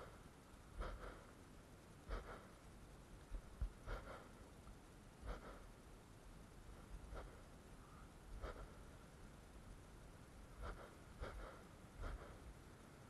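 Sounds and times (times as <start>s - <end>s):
quiet outdoor background: 0.0s - 13.0s
breath puffs into microphone: 0.8s - 1.3s, 2.1s - 2.5s, 3.8s - 4.4s, 5.2s - 5.7s, 7.1s - 7.4s, 8.4s - 8.8s, 10.6s - 12.5s.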